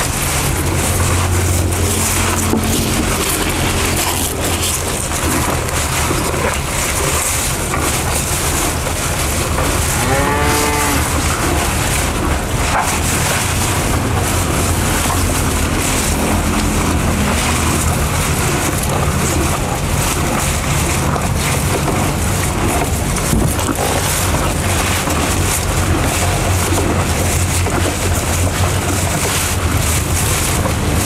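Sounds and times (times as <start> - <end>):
steady background noise: 0.0 - 31.0
cattle mooing: 1.1 - 4.8, 9.6 - 11.9.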